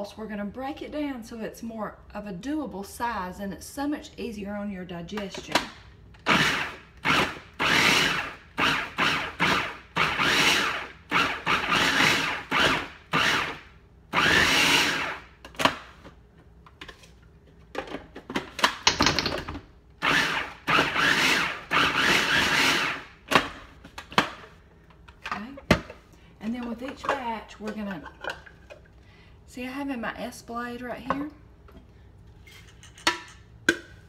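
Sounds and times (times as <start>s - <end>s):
food processor chopping: 6.2s - 13.6s, 14.2s - 15.8s, 20.0s - 23.5s.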